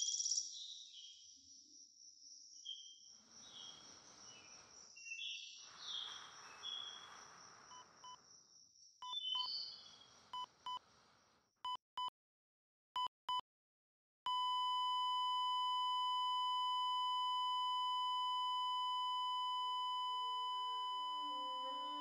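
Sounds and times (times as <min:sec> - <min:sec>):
heart monitor beeps: 0:10.4 - 0:10.8, 0:11.7 - 0:12.1, 0:14.3 - 0:22.0
flatline tone: 0:14.3 - 0:22.0.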